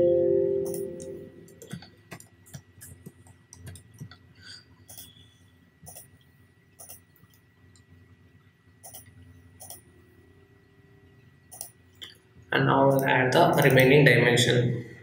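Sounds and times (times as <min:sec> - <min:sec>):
faint high tone: 0:00.0 - 0:01.4
computer mouse clicking: 0:01.5 - 0:04.1, 0:04.8 - 0:05.2, 0:05.8 - 0:06.1, 0:06.8 - 0:07.9, 0:08.8 - 0:09.9, 0:11.5 - 0:11.8, 0:12.9 - 0:13.9.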